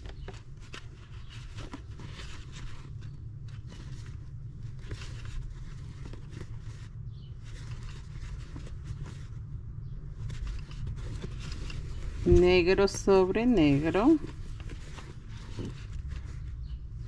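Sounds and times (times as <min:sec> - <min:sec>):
low steady hum: 0:00.0 - 0:17.0
crochet hook and yarn rustling: 0:10.2 - 0:16.7.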